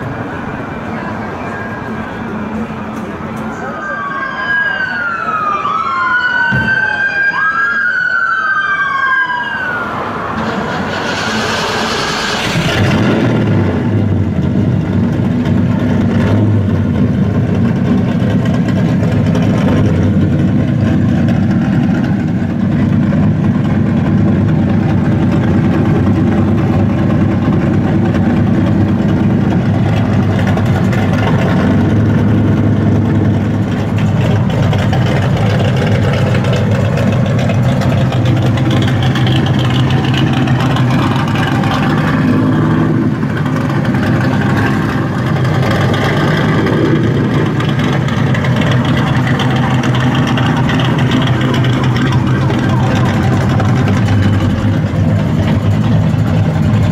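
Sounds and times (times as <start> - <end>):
car engine idling: 10.4 - 56.9.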